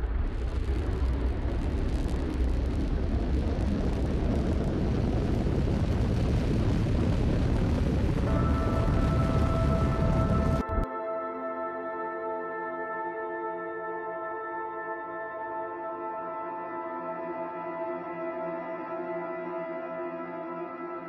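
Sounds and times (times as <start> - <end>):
rocket engines rumbling: 0.0 - 10.9
ambient music with held tones: 8.2 - 21.0.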